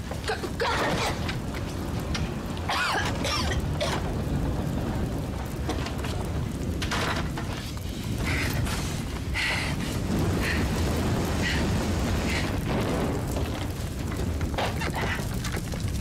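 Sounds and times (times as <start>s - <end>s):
fire rumbling and crackling: 0.0s - 16.0s.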